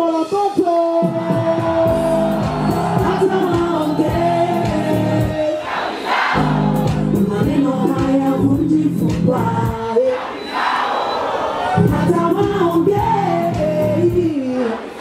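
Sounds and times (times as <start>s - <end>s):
man singing over backing track: 0.0s - 5.7s, 6.4s - 10.3s, 11.7s - 15.0s
crowd cheering: 1.0s - 7.1s, 10.0s - 12.1s.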